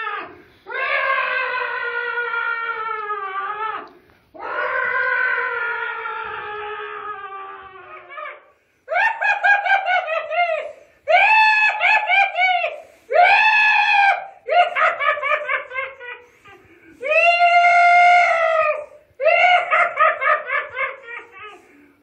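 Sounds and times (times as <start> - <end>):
person screaming: 0.0 - 21.8
person cackling laughter: 8.0 - 12.4, 14.5 - 17.0, 19.2 - 21.8.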